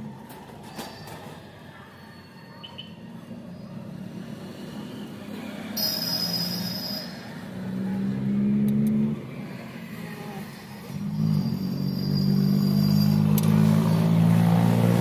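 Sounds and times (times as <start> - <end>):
road traffic passing: 0.0 - 15.0
high squeal: 0.6 - 3.8, 5.8 - 7.4, 10.4 - 14.1
vehicle engine drone: 3.0 - 15.0.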